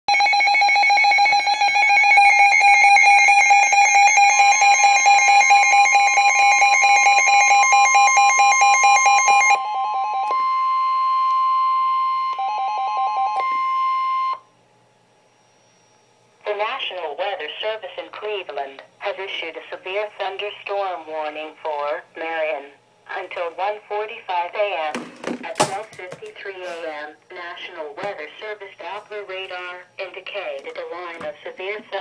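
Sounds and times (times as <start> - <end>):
rapid electronic alarm beeps: 0.1 - 14.5
steady high warning tone: 0.1 - 24.8, 25.5 - 32.0.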